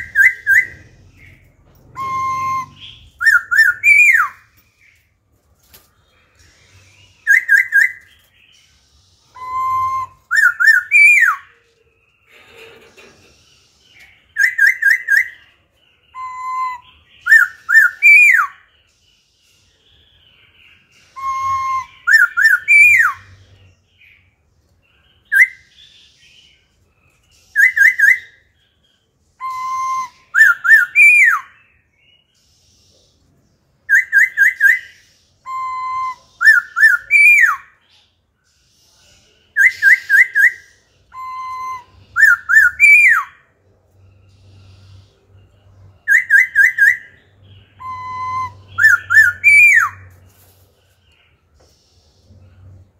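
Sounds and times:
bird singing whistled phrases: 0:00.0 - 0:05.0, 0:06.4 - 0:11.6, 0:13.9 - 0:18.8, 0:20.4 - 0:23.5, 0:25.2 - 0:26.0, 0:27.5 - 0:28.5, 0:29.3 - 0:31.9, 0:33.8 - 0:37.9, 0:39.5 - 0:43.5, 0:45.8 - 0:50.2.

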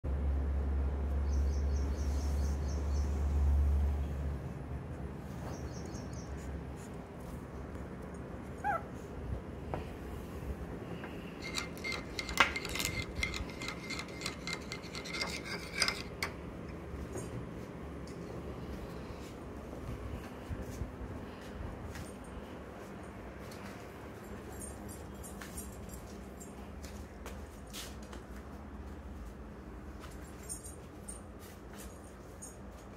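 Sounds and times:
puppy whine: 0:08.4 - 0:09.2
ringing clinks: 0:11.4 - 0:16.3
metal spoon scraping ceramic bowl: 0:11.4 - 0:16.4.

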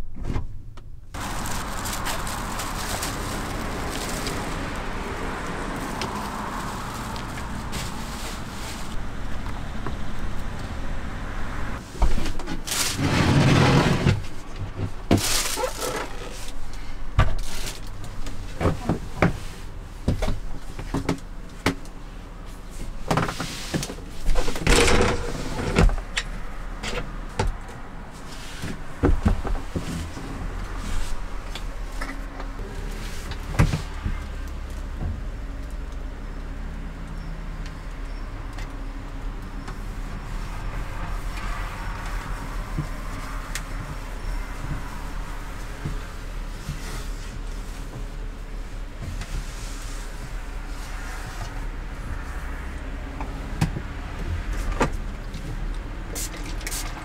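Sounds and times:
scraping and rustling: 0:01.2 - 0:09.2, 0:11.8 - 0:21.0, 0:22.5 - 0:26.2, 0:26.8 - 0:34.8, 0:39.7 - 0:52.4.

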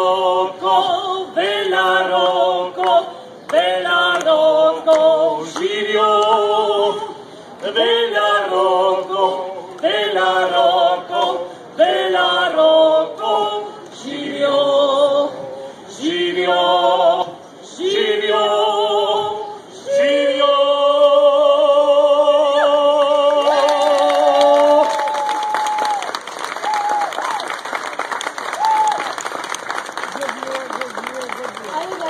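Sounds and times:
woman and man singing: 0:00.0 - 0:25.1
applause: 0:23.4 - 0:32.0.

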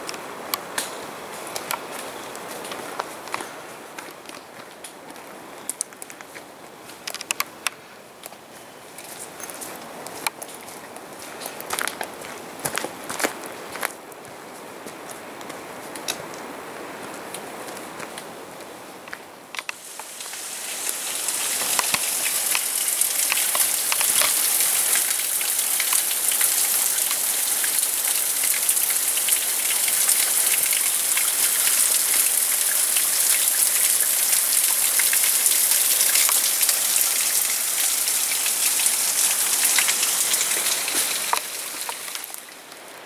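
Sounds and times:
water dripping onto stones: 0:19.6 - 0:42.8.

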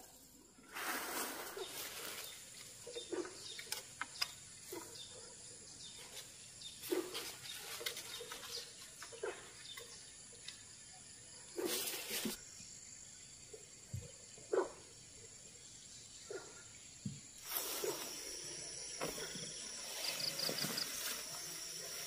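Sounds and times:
rustling through brush: 0:00.7 - 0:02.9, 0:11.6 - 0:12.4, 0:17.4 - 0:18.3
small birds chirping: 0:01.5 - 0:22.0.

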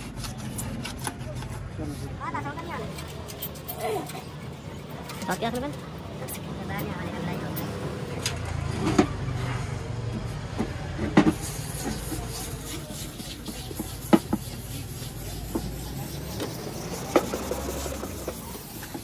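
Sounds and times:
hands rubbing plastic: 0:00.0 - 0:04.4, 0:10.3 - 0:19.0
low traffic rumble: 0:00.0 - 0:19.0.

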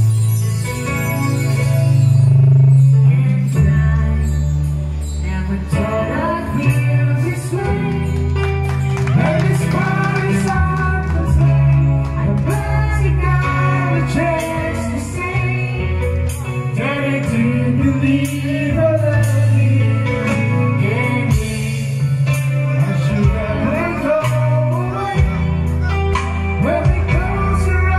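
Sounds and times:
live band playing: 0:00.0 - 0:27.9
woman singing into a microphone: 0:12.2 - 0:16.2.

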